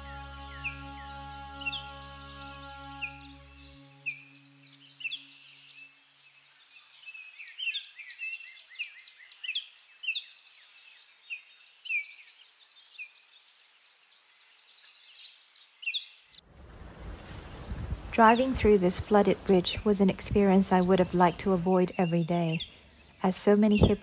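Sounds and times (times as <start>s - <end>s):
high insect drone: 0.0s - 6.4s
birds chirping and whistling: 0.0s - 6.8s.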